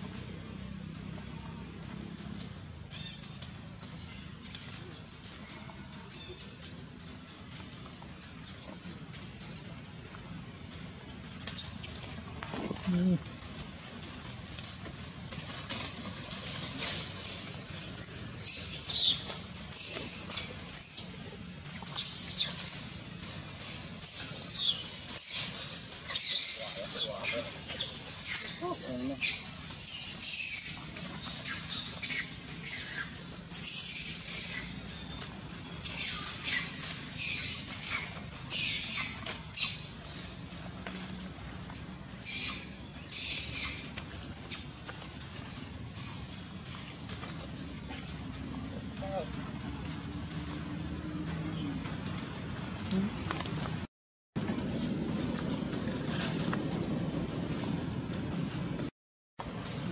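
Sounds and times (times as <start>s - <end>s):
baby monkey screaming: 35.8s - 39.8s, 42.1s - 43.8s.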